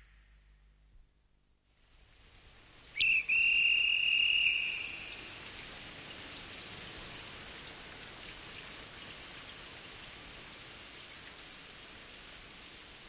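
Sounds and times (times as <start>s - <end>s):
steady rain: 1.6s - 13.0s.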